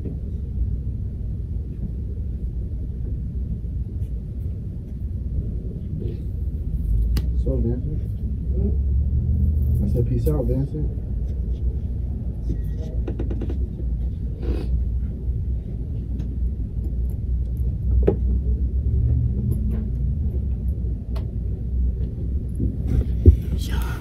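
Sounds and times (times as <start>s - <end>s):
steady low rumble: 0.0s - 24.0s.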